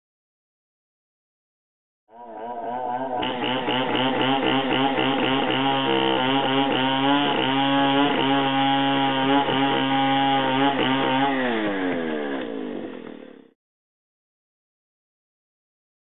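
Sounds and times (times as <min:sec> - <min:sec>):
chainsaw engine revving: 0:02.3 - 0:13.5.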